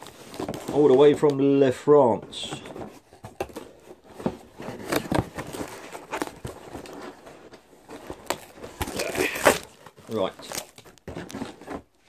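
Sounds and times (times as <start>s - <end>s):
cardboard box being opened: 0.0s - 1.4s, 2.1s - 12.0s
packing paper rustling: 0.0s - 12.0s.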